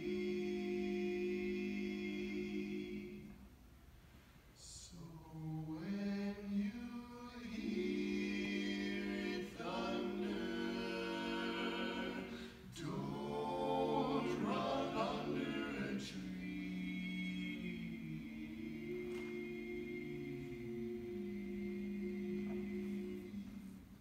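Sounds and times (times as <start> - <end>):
vocal quartet singing a cappella: 0.0 - 24.0
singers breathing: 12.3 - 12.7.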